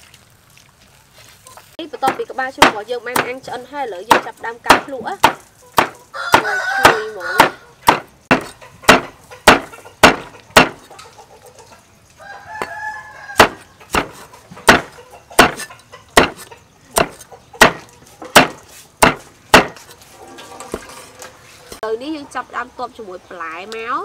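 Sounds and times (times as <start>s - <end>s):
cleaver chopping on wooden board: 4.1s - 10.9s, 13.4s - 19.9s
rooster crowing: 6.0s - 7.8s, 12.2s - 13.8s.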